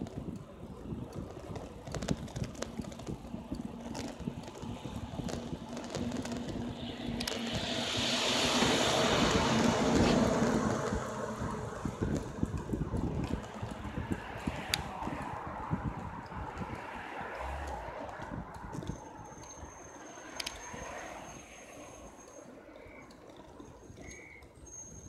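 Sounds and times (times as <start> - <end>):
bicycle knocks and rattles: 0.0 - 7.7
wind noise: 0.0 - 25.0
truck passing close by: 4.8 - 19.1.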